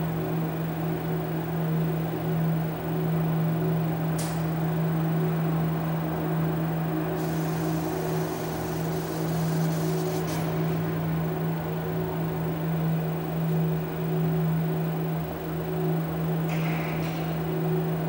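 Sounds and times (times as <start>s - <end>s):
high hiss: 7.2s - 11.3s
electronic drone hum: 7.2s - 16.4s.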